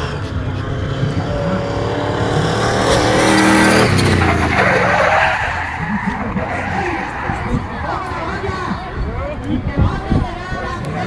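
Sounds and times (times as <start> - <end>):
car engine revving hard: 0.0 - 8.2
tyres squealing on tarmac: 3.7 - 9.0.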